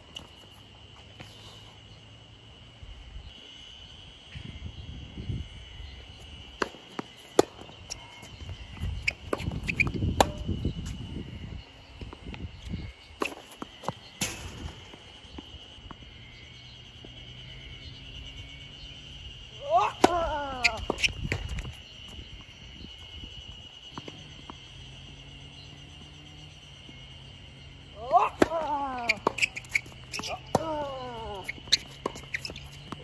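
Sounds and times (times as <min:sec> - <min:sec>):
racket striking tennis ball: 0:09.3 - 0:10.5
footsteps on court: 0:31.3 - 0:33.0.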